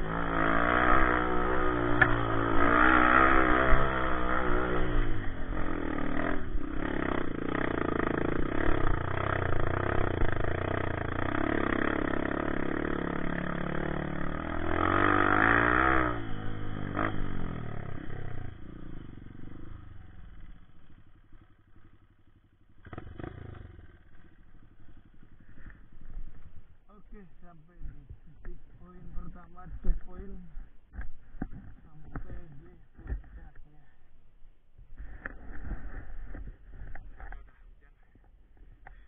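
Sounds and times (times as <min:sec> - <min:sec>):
dirt bike engine revving: 0:00.0 - 0:30.2.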